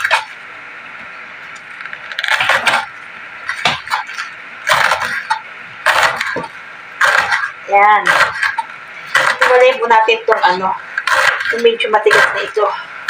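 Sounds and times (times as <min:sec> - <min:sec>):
knife chopping on cutting board: 0:08.1 - 0:11.5.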